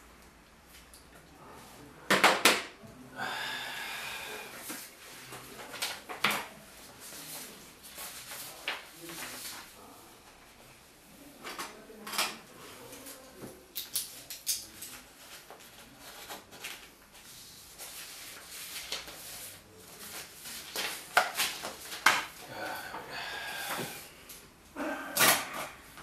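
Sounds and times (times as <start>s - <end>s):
paper rustling: 4.7s - 10.0s, 14.2s - 22.4s.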